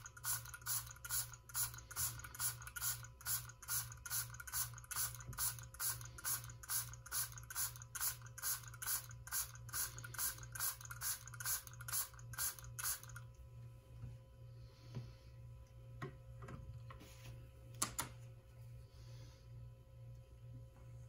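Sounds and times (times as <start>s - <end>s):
spray bottle hissing: 0.1s - 13.2s.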